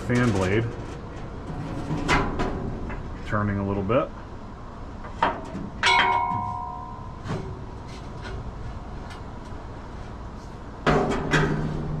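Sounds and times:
loud metal clang: 5.2s - 7.6s.

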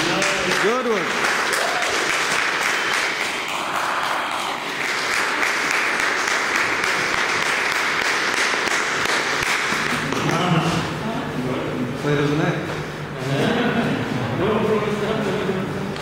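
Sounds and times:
crowd applauding: 0.0s - 10.5s.

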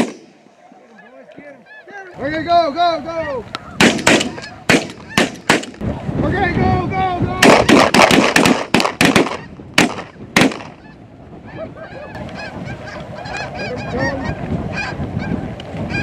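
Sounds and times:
shotgun blasts: 0.0s - 0.4s, 3.8s - 5.8s, 7.4s - 10.8s
geese honking: 0.0s - 5.5s, 9.1s - 9.6s, 10.6s - 16.0s.

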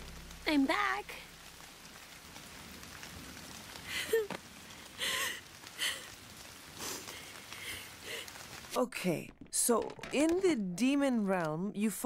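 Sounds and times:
steady rain falling: 0.0s - 12.0s
person sobbing and gasping: 3.9s - 6.2s.

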